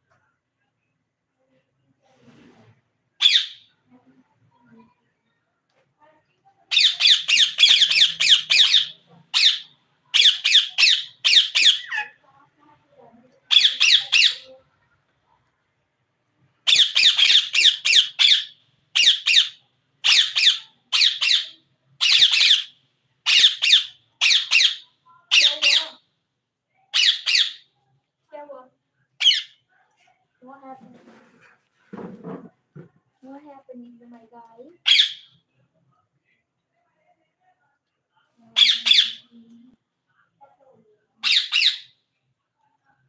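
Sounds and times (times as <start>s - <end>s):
parakeet squawking: 3.2s - 3.6s, 6.7s - 12.2s, 13.5s - 14.5s, 16.7s - 22.7s, 23.3s - 26.0s, 26.9s - 27.6s, 29.2s - 29.6s, 34.8s - 35.3s, 38.6s - 39.3s, 41.2s - 41.9s.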